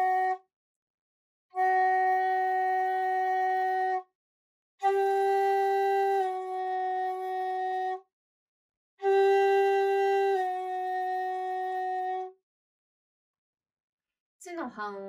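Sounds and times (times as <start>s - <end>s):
bamboo flute holding notes: 0.0s - 0.4s, 1.6s - 4.0s, 4.8s - 8.0s, 9.0s - 12.4s.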